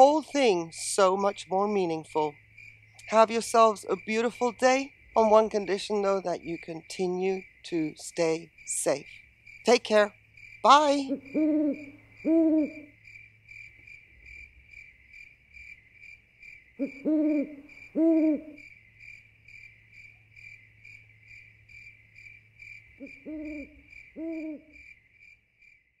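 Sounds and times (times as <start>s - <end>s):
crickets chirping: 0.0s - 26.0s
owl hooting: 10.7s - 13.0s, 16.8s - 18.6s, 23.0s - 24.8s.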